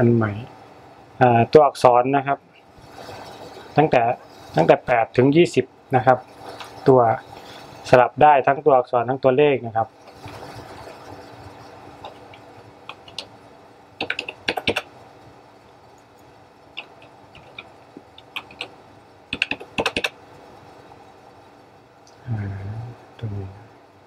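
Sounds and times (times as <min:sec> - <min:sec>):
keyboard typing: 0:12.0 - 0:13.3, 0:14.0 - 0:14.9, 0:16.8 - 0:20.2.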